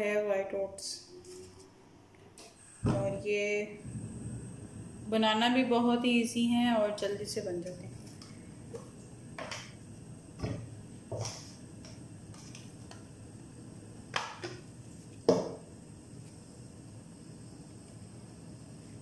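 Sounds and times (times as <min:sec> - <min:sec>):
faint low hum: 0:00.0 - 0:15.1.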